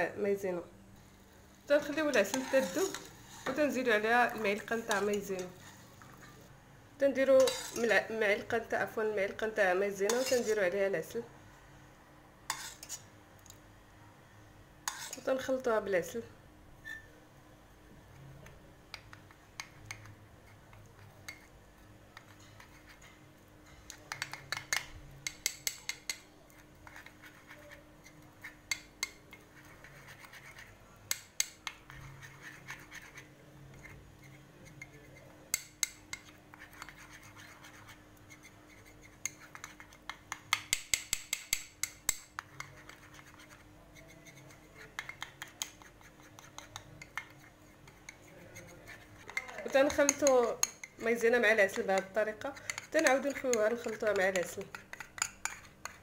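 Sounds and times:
metal spoon scraping ceramic bowl: 1.7s - 6.4s, 7.2s - 8.2s, 9.9s - 10.8s, 12.5s - 13.1s, 14.9s - 15.4s, 22.2s - 56.0s.

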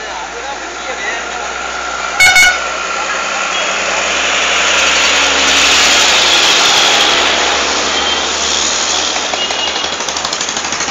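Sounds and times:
lorry passing close by: 0.2s - 9.3s.

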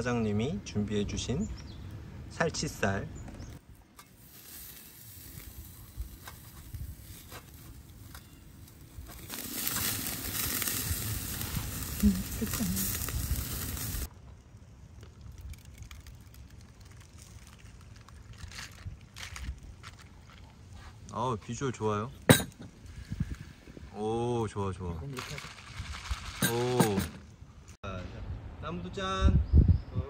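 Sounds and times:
meat sizzling on a grill: 4.0s - 14.1s.

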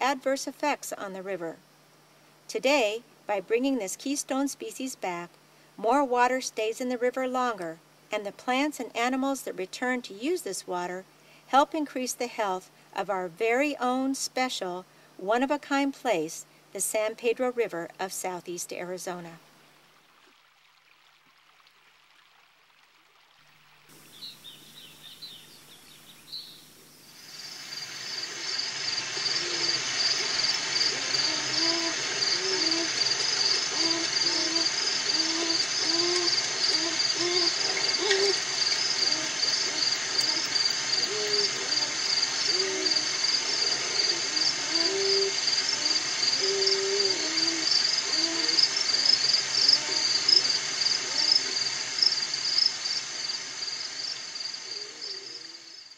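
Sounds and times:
high insect trill: 23.9s - 55.9s
low hooting calls: 27.3s - 52.5s, 54.5s - 55.8s.

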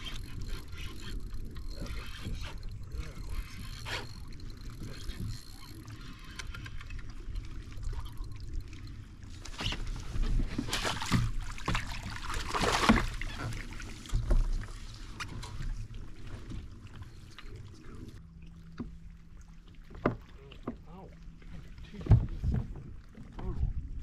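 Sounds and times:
fish thrashing in water: 9.4s - 14.7s.

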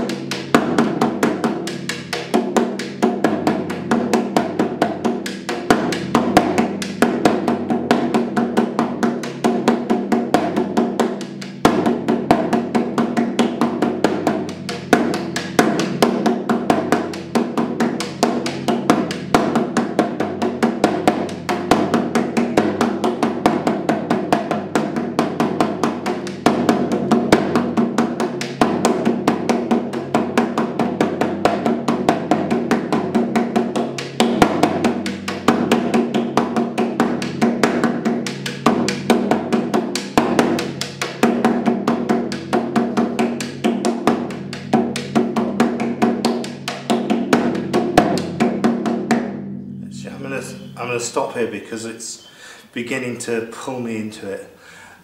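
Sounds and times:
frame drum beaten with stick: 0.0s - 51.9s.

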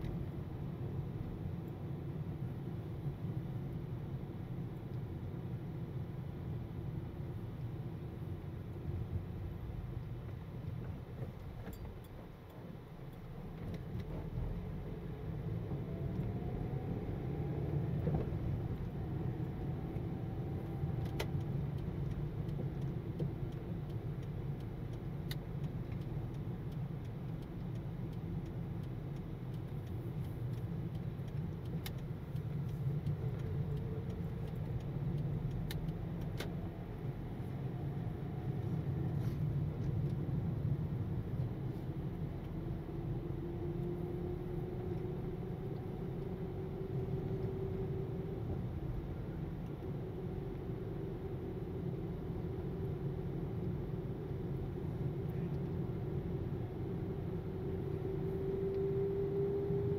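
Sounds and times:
car road and engine noise: 0.0s - 59.9s
light ticks: 19.9s - 37.6s.

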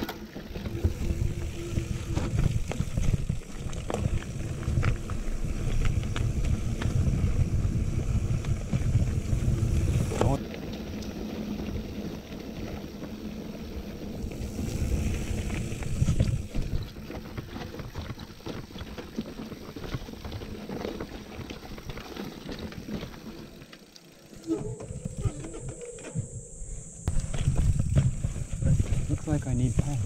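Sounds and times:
bike rattling over bumps: 0.0s - 30.0s
bike tyres rolling over rough ground: 0.0s - 30.0s
wind rumble on microphone: 0.6s - 10.4s, 14.2s - 18.1s, 24.4s - 30.0s.

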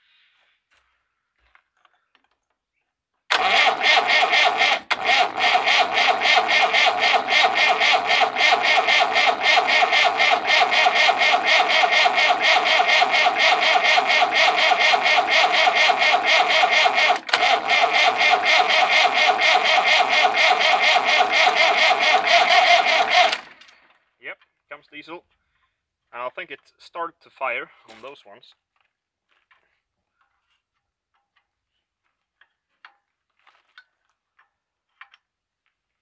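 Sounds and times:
diesel engine cranking on starter: 3.3s - 24.0s.

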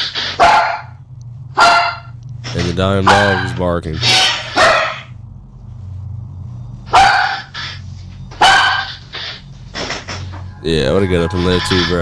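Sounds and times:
dog barking: 0.4s - 0.9s, 1.6s - 2.1s, 4.5s - 5.1s, 6.9s - 7.5s, 8.4s - 9.0s.

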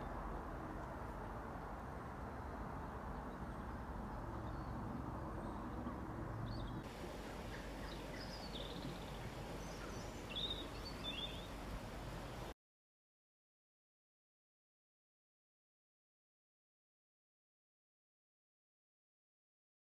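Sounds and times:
low woodland background noise: 0.0s - 12.6s.

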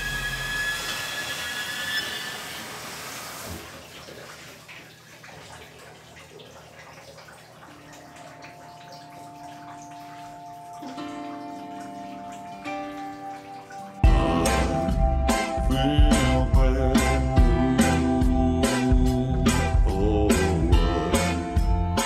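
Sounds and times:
high ringing tones: 0.0s - 2.5s
water running: 0.0s - 22.0s.

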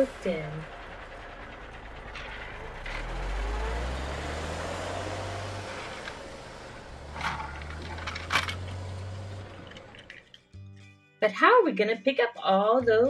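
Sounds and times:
toy wheels rumbling on plastic: 7.1s - 8.8s.

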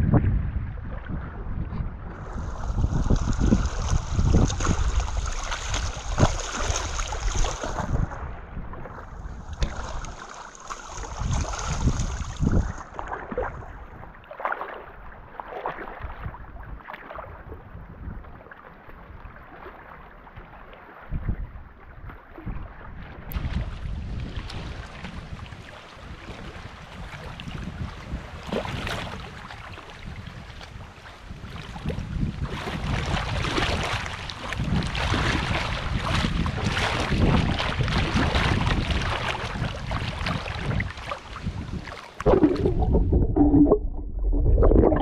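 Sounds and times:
wind buffeting microphone: 0.0s - 10.3s, 11.0s - 14.2s, 16.0s - 19.4s, 21.1s - 45.0s
small waves lapping: 2.0s - 43.8s
splashing steps in water: 2.2s - 8.2s, 8.8s - 17.3s.

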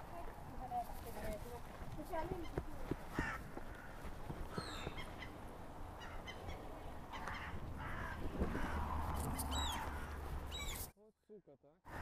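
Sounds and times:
crows cawing alarm calls: 2.3s - 10.8s.

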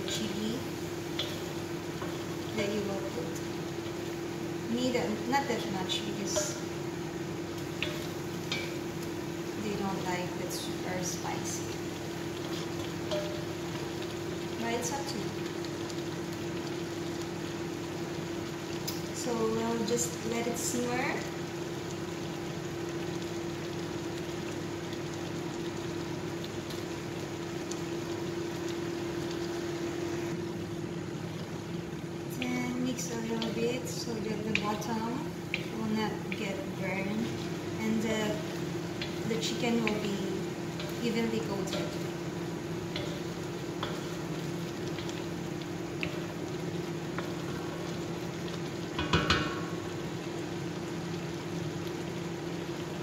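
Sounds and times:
sauce bubbling and sizzling in wok: 0.0s - 53.0s
spatula clattering against wok: 13.1s - 13.6s, 49.0s - 49.7s
steady low hum: 26.5s - 50.4s.

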